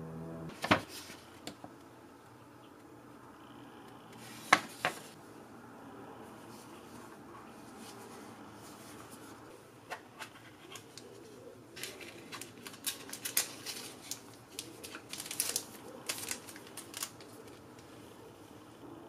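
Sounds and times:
packaging rustling: 10.2 - 17.8.

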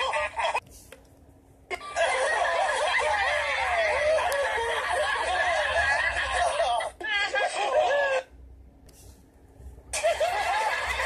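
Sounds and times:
cartoon characters laughing: 0.0 - 0.6, 1.7 - 8.3, 10.0 - 11.0.

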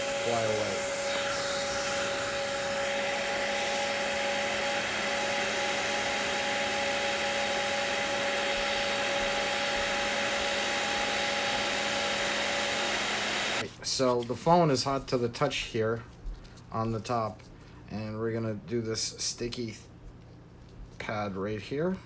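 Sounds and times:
blow dryer running: 0.0 - 13.7.

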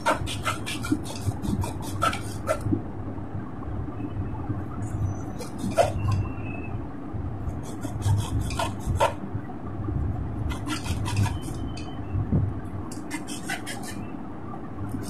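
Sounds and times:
hacksaw sawing cable: 0.0 - 2.6, 7.6 - 9.2, 10.5 - 11.6, 13.0 - 14.0.

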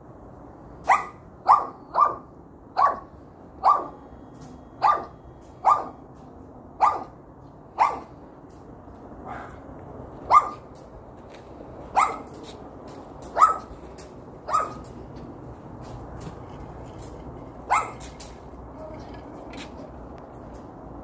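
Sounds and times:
small dog barking: 0.8 - 4.0, 4.8 - 6.0, 6.8 - 7.2, 7.8 - 8.1, 10.3 - 10.7, 11.9 - 12.3, 13.3 - 13.8, 14.4 - 14.9, 17.7 - 18.1.

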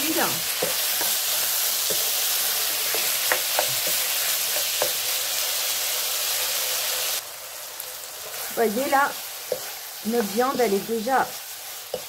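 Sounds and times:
meat sizzling in a wok: 0.0 - 12.0
wooden spatula scraping a pan: 0.1 - 5.1, 8.2 - 12.0.

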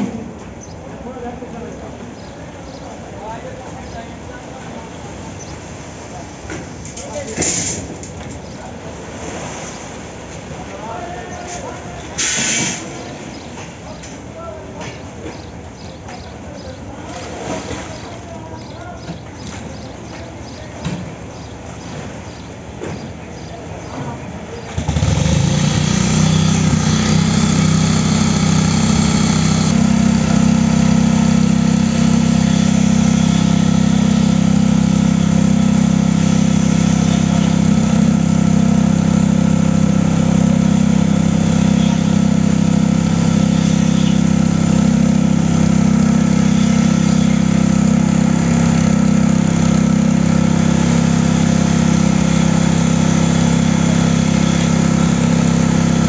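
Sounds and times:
small engine running steadily: 24.7 - 56.0.

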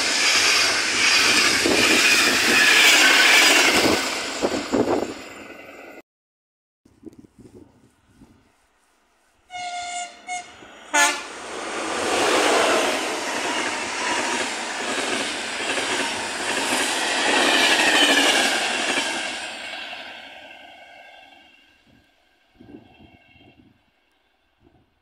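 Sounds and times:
train rumbling past: 0.0 - 6.0, 9.5 - 24.7
locomotive horn blasts: 9.5 - 11.4.

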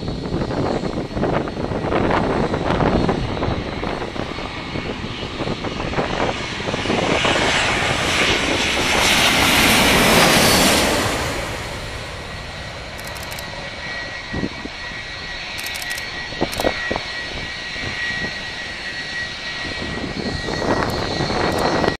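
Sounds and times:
distant jet rumble: 0.0 - 22.0
jet engines passing overhead: 0.0 - 22.0.

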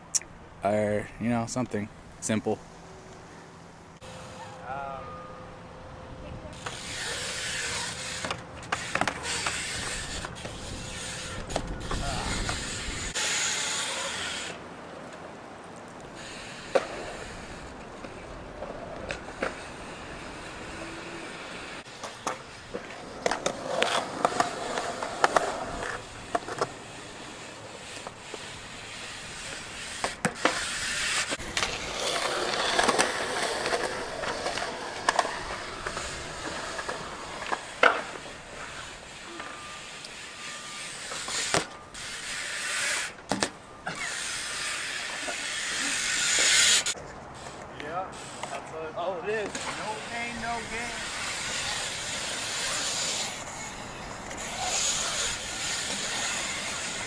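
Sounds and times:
wheels rolling on concrete: 0.0 - 57.0
bike and board landing clacks: 6.6 - 12.8, 41.0 - 42.2, 43.1 - 44.1.

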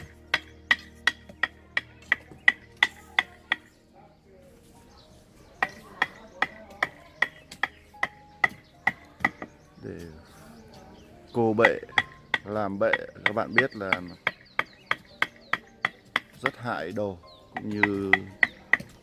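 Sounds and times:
hand tool chopping wood: 0.0 - 3.7, 5.6 - 9.5, 11.5 - 19.0.

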